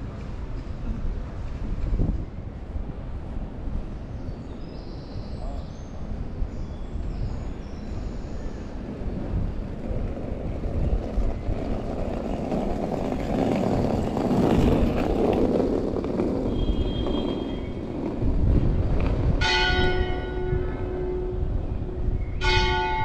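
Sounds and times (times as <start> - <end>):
outdoor city background noise: 0.0 - 23.0
church bell ringing: 19.4 - 21.4, 22.4 - 23.0.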